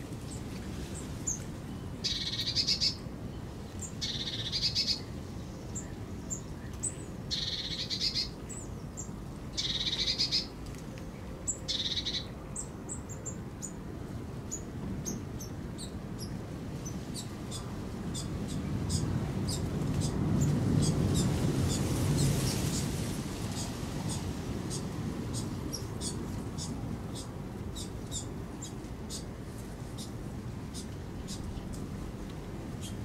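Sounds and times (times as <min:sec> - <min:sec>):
small birds chirping: 0:01.0 - 0:03.0, 0:03.8 - 0:10.5, 0:11.5 - 0:13.8, 0:23.5 - 0:29.3, 0:29.9 - 0:31.8.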